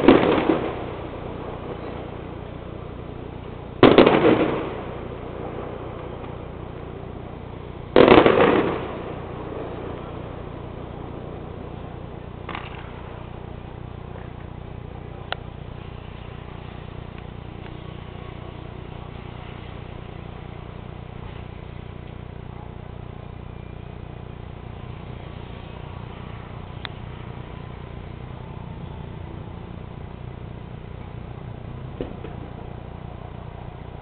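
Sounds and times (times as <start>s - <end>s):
distant firework bangs: 0.0s - 23.4s, 31.8s - 33.5s
distant city traffic hum: 0.0s - 34.0s.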